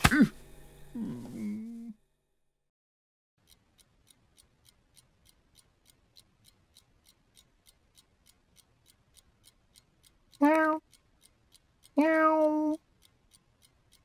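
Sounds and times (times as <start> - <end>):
clock ticking: 3.4 - 14.0.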